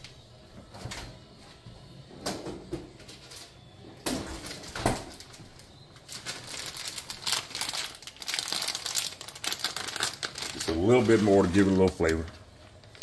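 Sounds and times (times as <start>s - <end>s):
packaging crinkling: 4.4s - 13.0s.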